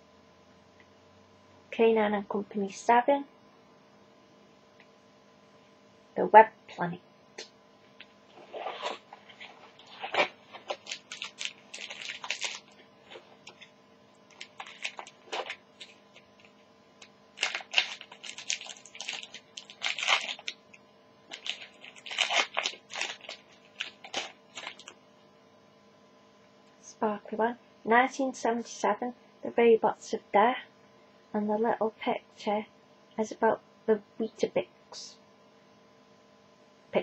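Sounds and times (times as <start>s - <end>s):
foil wrapper crackling: 8.5s - 25.0s.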